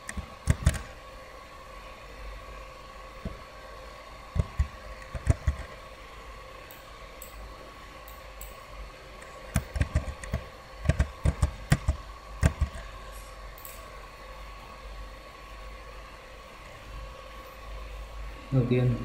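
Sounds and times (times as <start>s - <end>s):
mouse and keyboard clicks: 0.0s - 0.9s, 4.4s - 5.7s, 9.5s - 12.8s
background hum with high tone: 0.0s - 19.0s.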